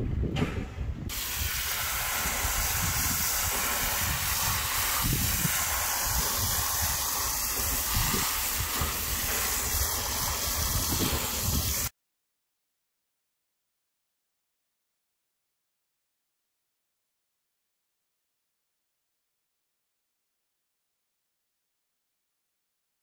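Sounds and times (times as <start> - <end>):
hose spraying water on soil: 1.1 - 11.9.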